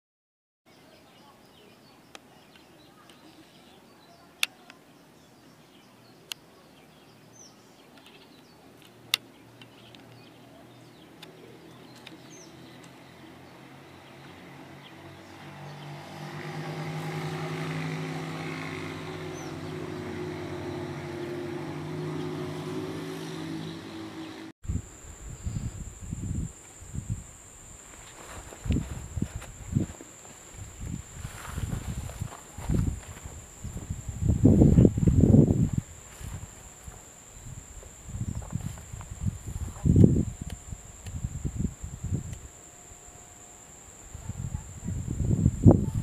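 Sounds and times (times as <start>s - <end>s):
high steady whine: 24.0s - 46.0s.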